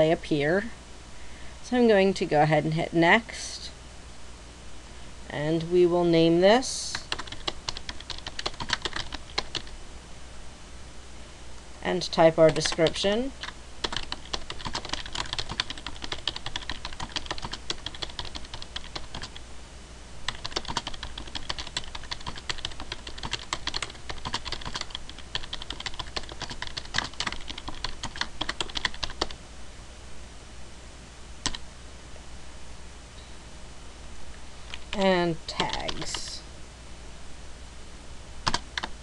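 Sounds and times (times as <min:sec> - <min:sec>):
typing on keyboard: 0:06.9 - 0:09.7, 0:12.5 - 0:19.4, 0:20.3 - 0:29.4, 0:31.4 - 0:31.6, 0:35.6 - 0:36.2, 0:38.4 - 0:39.0.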